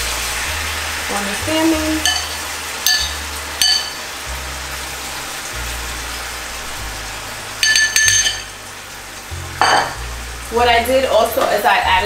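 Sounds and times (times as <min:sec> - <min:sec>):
sauce sizzling in a frying pan: 0:00.0 - 0:12.0
metal spoon clinking on ceramic bowl: 0:02.0 - 0:04.0, 0:07.6 - 0:08.5, 0:09.6 - 0:10.0.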